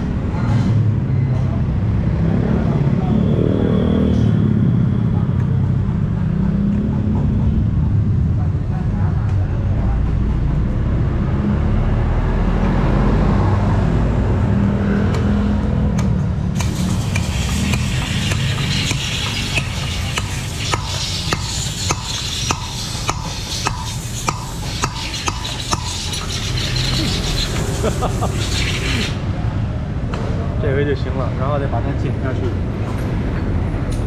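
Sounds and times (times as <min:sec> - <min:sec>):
vehicle engines and traffic rumble: 0:00.0 - 0:34.0
sharp metal taps: 0:16.0 - 0:27.6.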